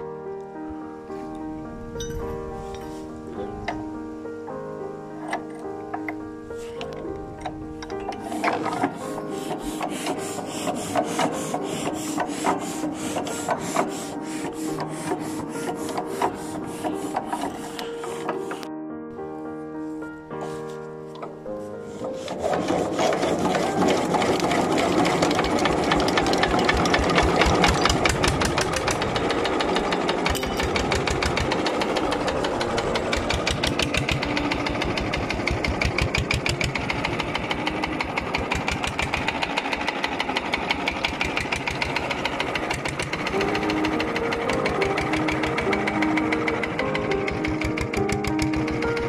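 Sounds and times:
diesel engine knocking: 23.9 - 49.0.

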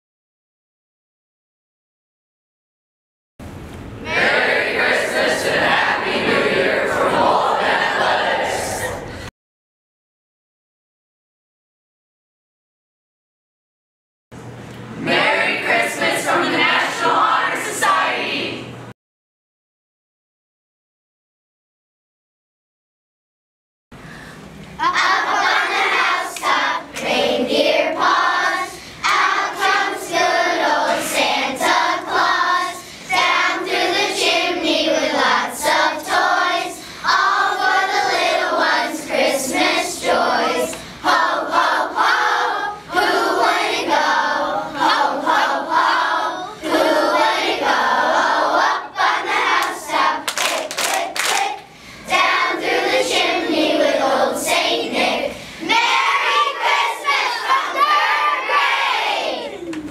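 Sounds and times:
children singing in unison: 4.0 - 9.1, 24.8 - 59.6
hand claps: 49.6 - 51.6.

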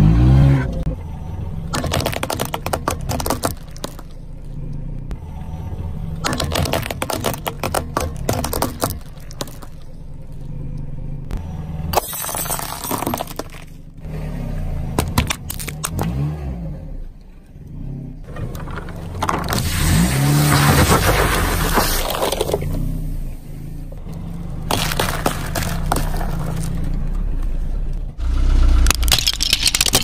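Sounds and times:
low engine rumble: 0.0 - 30.0
paintballs cracking and popping: 1.7 - 4.2, 6.2 - 9.9, 24.1 - 27.0, 28.8 - 30.0.

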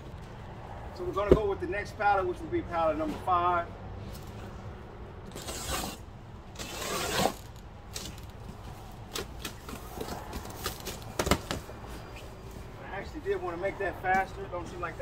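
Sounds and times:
rustling scrapes of boxes: 5.3 - 6.0, 6.6 - 8.3.

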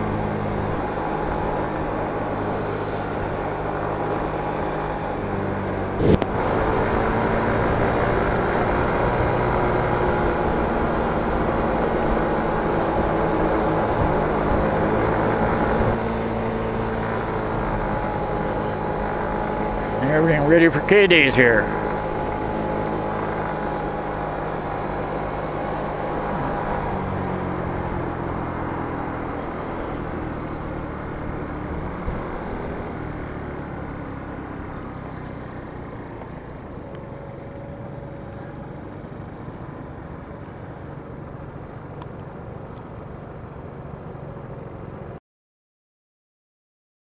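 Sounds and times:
motor scooter engine hum: 0.0 - 45.2
wind noise on microphone: 6.0 - 6.3.

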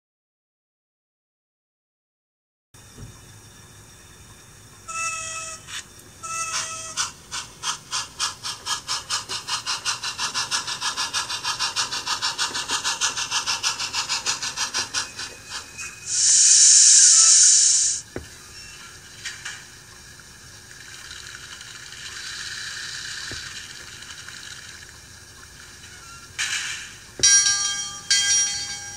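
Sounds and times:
steam hiss: 5.7 - 18.4, 19.0 - 24.8
steam chuffing: 6.6 - 18.0, 20.1 - 28.9
steam whistle blasts: 16.1 - 18.0.

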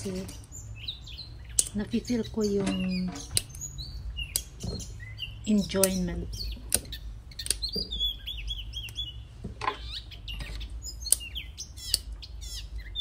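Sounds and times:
birds chirping: 0.0 - 13.0
string beans snapping: 1.5 - 1.8, 6.7 - 7.8.

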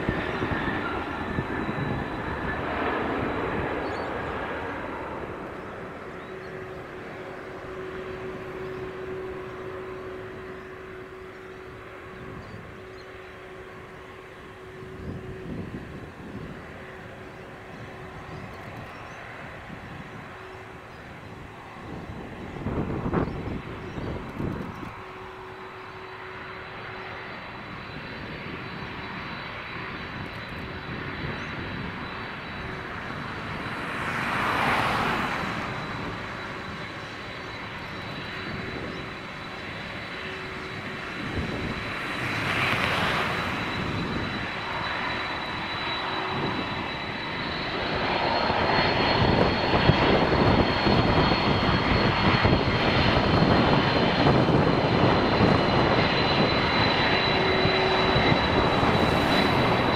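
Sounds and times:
jet engines whining and rumbling: 0.0 - 59.9
rushing noise: 37.8 - 59.9.

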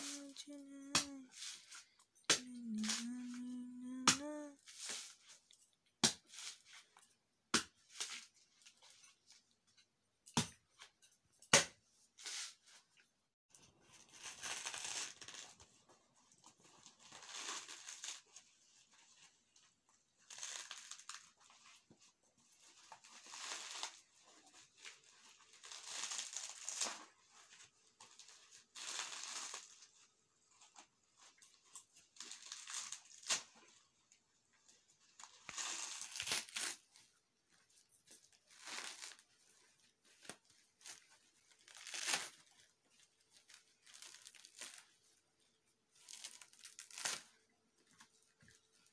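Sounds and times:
coconut husk ripping: 14.0 - 15.6, 24.9 - 27.1, 35.5 - 36.8, 38.5 - 39.3, 40.2 - 42.7, 43.4 - 44.9, 46.0 - 47.4.

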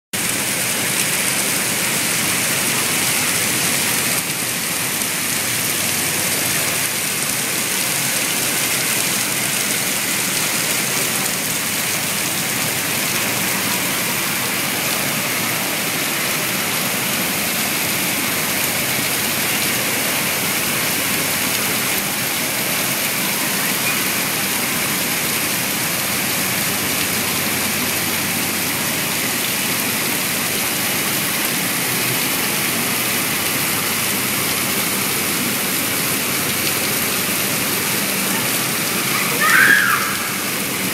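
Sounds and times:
water splashing into pond: 0.2 - 40.9.

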